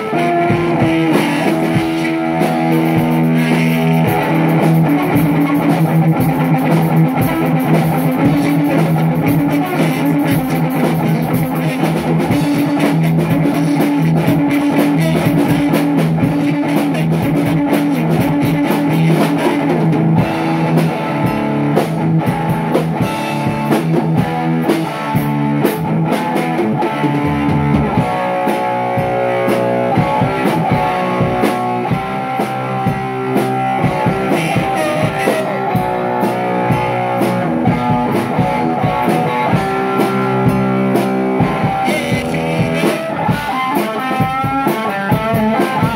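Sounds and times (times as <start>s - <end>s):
drum kit: 0.0s - 45.9s
guitar: 0.0s - 45.9s
rock music: 0.0s - 45.9s.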